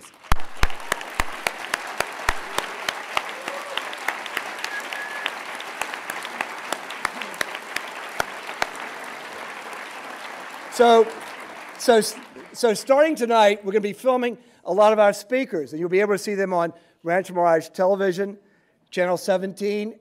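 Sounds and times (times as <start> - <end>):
sharp single claps: 0.0 - 3.3
audience applauding: 0.0 - 13.6.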